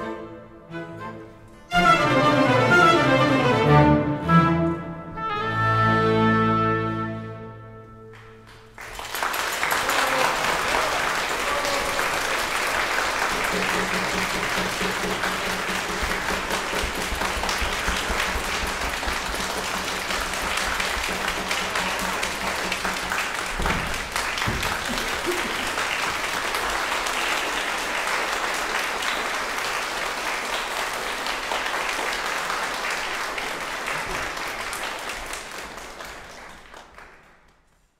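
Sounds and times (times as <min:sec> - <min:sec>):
audience applauding: 0:08.1 - 0:37.9.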